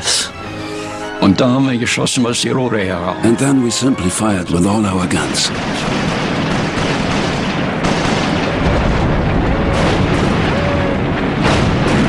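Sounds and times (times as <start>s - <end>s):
anti-aircraft guns firing: 4.6s - 12.0s.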